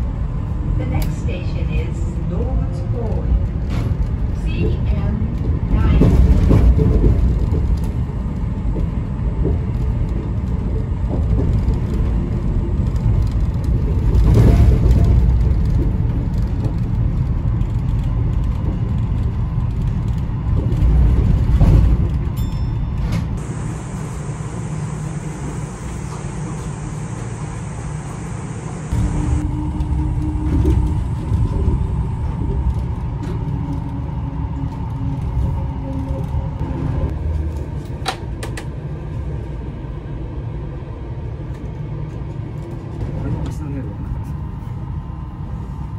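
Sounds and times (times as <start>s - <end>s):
monorail car rumbling: 0.0s - 45.9s
high steady whine: 23.4s - 34.2s.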